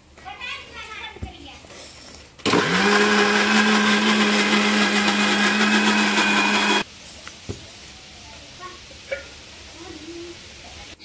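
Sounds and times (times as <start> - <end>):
mixer grinder motor grinding: 2.4 - 6.8.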